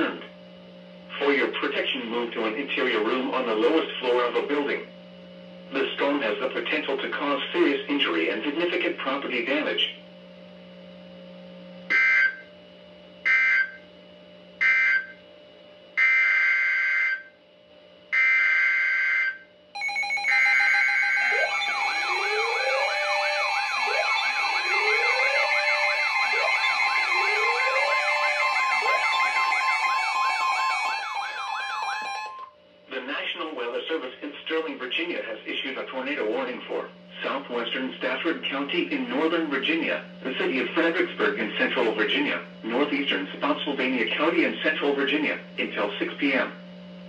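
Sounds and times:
steady warning alarm tone: 0:11.9 - 0:12.5, 0:13.2 - 0:13.9, 0:14.6 - 0:15.2, 0:16.0 - 0:17.4, 0:18.1 - 0:32.6
weather radio alarm sirens and chirps: 0:11.9 - 0:12.5, 0:13.2 - 0:13.8, 0:14.6 - 0:15.2, 0:16.0 - 0:17.3, 0:18.1 - 0:32.6
data bursts: 0:19.8 - 0:32.5.

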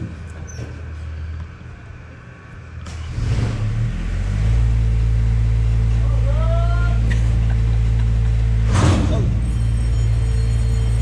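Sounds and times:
train engine humming: 0:04.9 - 0:11.0.

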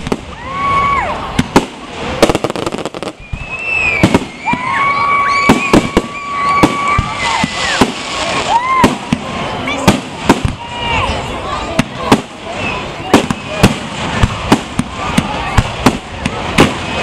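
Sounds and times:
fireworks bangs and crackling: 0:00.0 - 0:17.0
high-pitched whistle tone: 0:03.0 - 0:04.5.

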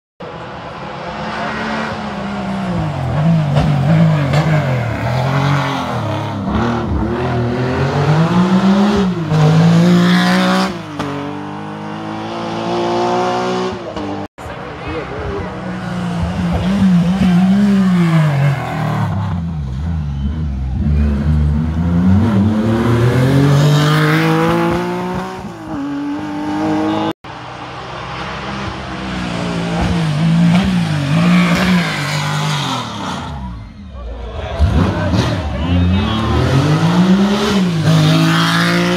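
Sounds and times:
rally car engine revving: 0:00.2 - 0:38.9
second rally car engine revving: 0:00.7 - 0:14.3, 0:15.7 - 0:27.1, 0:34.4 - 0:38.9.

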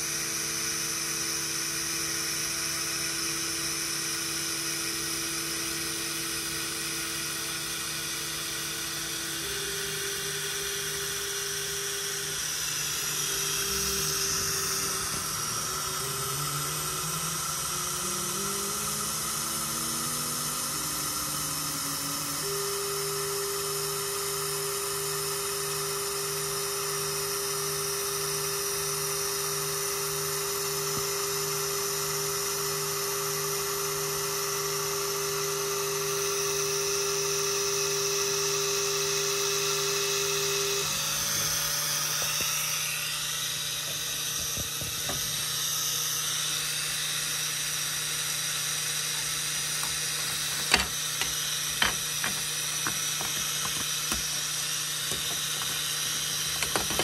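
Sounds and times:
laser cutter motors whining: 0:00.0 - 0:57.0.

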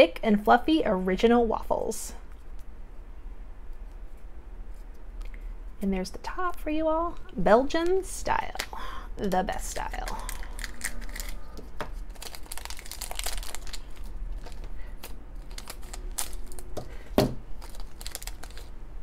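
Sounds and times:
plastic bag crinkling and tearing: 0:09.6 - 0:18.9.

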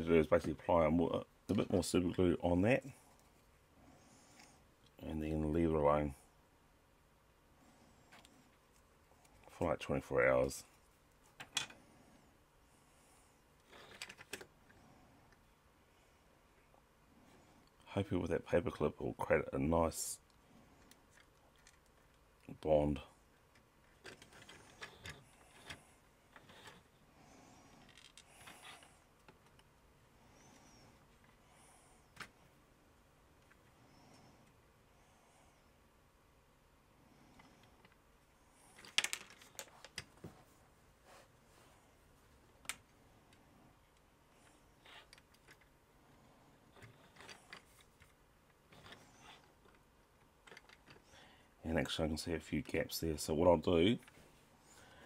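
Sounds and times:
soft rustle: 0:37.1 - 0:55.0.

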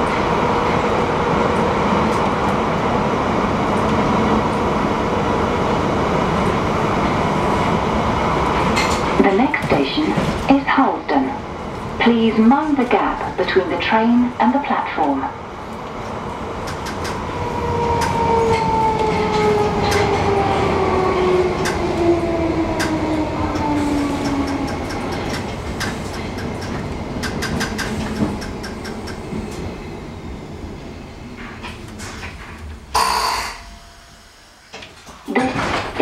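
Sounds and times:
wheels clicking over rail joints: 0:22.7 - 0:29.2.

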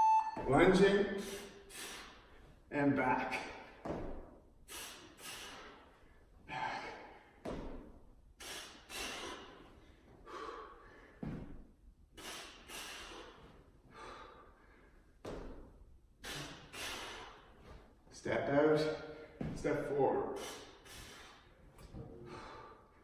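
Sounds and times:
man breathing hard: 0:01.2 - 0:02.5, 0:04.6 - 0:07.5, 0:08.4 - 0:11.3, 0:12.1 - 0:15.2, 0:16.2 - 0:17.8, 0:20.3 - 0:23.0.

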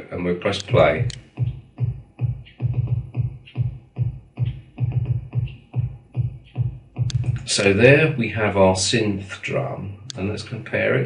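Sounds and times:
electronic bass drum thumps: 0:00.7 - 0:07.6.

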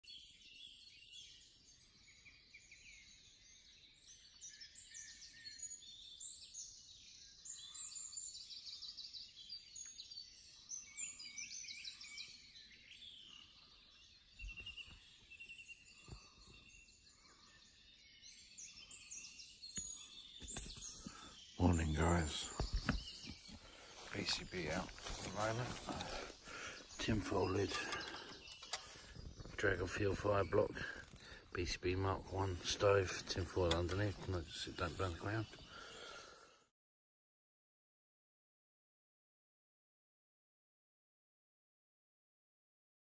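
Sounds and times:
birds singing: 0:00.0 - 0:36.7.

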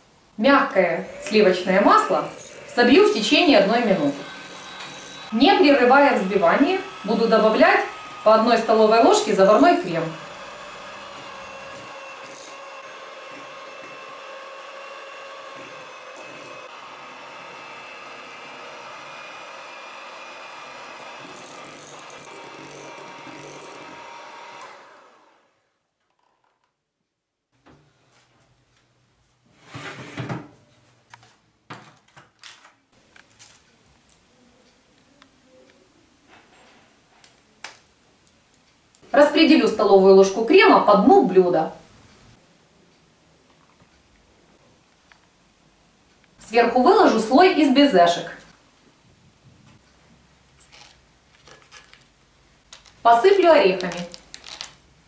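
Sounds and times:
electric hand mixer whining: 0:00.5 - 0:25.7
baking tray scraping on oven rack: 0:29.5 - 0:30.4.

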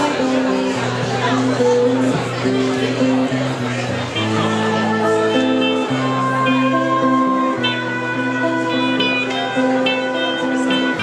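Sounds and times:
live band playing: 0:00.0 - 0:11.0.

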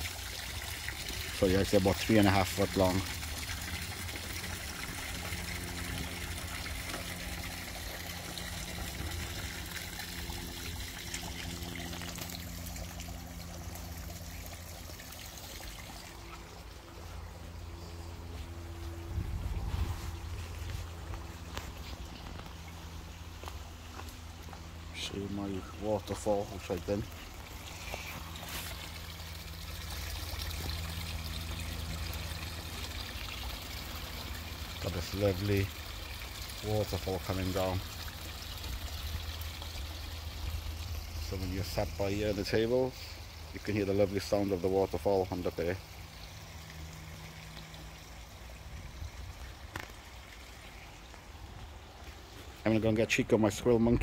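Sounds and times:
water trickling into a pond: 0:00.0 - 0:54.0.

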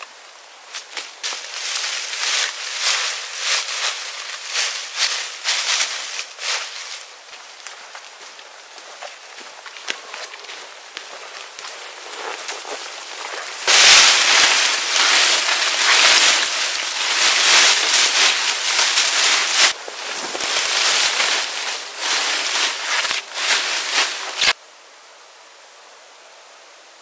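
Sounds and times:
fire crackling and popping: 0:07.3 - 0:24.6.

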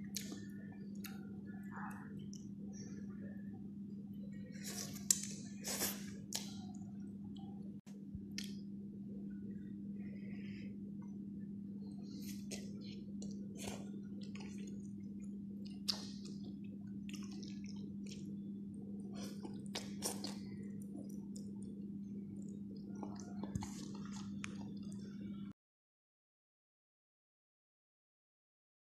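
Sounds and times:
steady low hum: 0:00.0 - 0:25.6
person chewing and slurping: 0:04.6 - 0:06.6, 0:12.1 - 0:25.1.

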